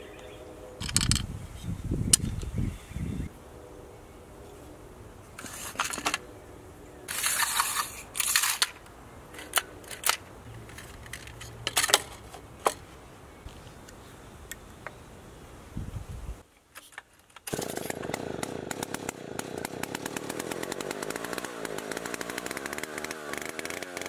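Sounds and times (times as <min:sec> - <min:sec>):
screwdriver rattling scrapes: 0:00.8 - 0:01.3, 0:05.4 - 0:06.2, 0:07.1 - 0:12.8.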